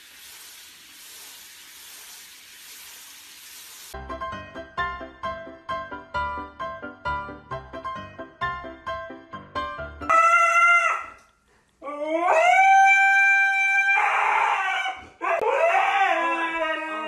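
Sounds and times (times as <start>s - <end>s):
husky howling: 11.9s - 17.0s.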